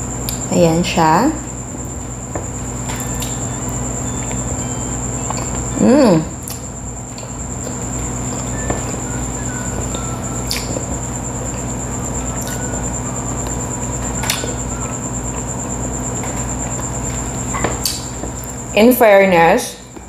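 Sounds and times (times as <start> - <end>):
electrical hum with high whine: 0.0 - 20.0
wet mouth clicks chewing: 6.4 - 8.4, 9.8 - 10.9, 12.4 - 12.7.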